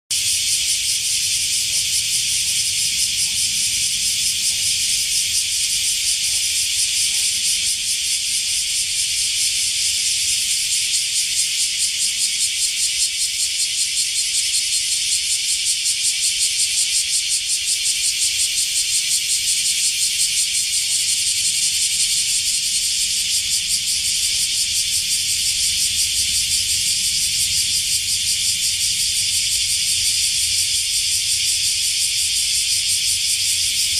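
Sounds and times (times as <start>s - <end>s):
insects buzzing: 0.1s - 33.9s.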